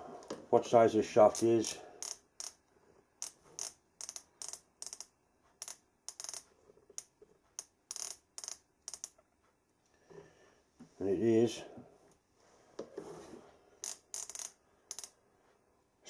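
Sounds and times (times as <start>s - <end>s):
micrometer ratchet clicks: 1.3s - 2.6s, 3.2s - 9.2s, 13.8s - 15.2s.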